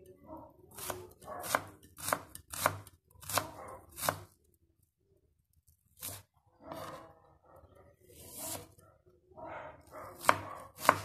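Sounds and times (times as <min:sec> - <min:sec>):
knife chopping on wooden board: 0:00.8 - 0:04.3, 0:10.1 - 0:11.0.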